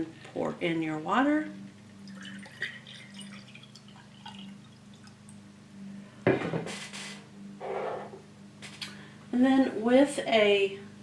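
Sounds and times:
water pouring into glass jar: 2.0 - 5.2.

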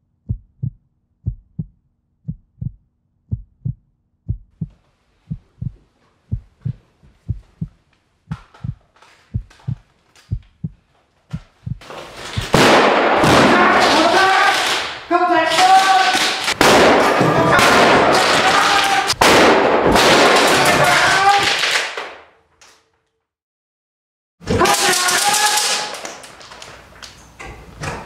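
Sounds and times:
heartbeat thumps: 0.1 - 11.8, 12.4 - 12.6.

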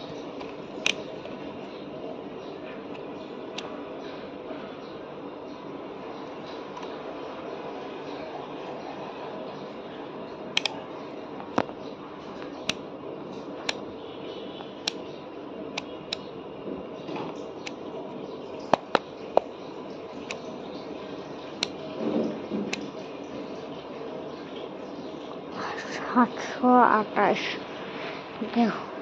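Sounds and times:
background hum: 0.0 - 29.0
sharp clicks: 10.6 - 10.8.

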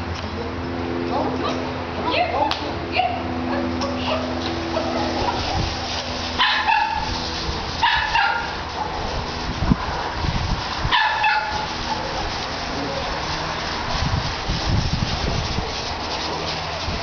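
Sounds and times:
dog barking: 6.4 - 7.1, 7.8 - 8.6, 10.9 - 11.6.

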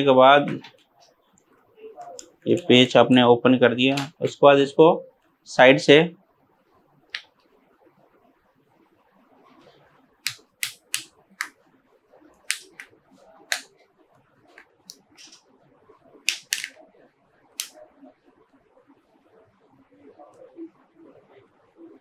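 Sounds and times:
plastic clips snapping: 10.3 - 11.5, 12.5 - 12.9, 13.5 - 13.7, 16.3 - 16.8.

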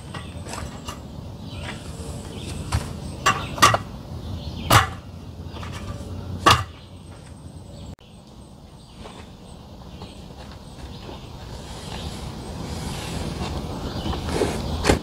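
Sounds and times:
metal slats clacking: 3.2 - 3.9, 4.7 - 6.8.

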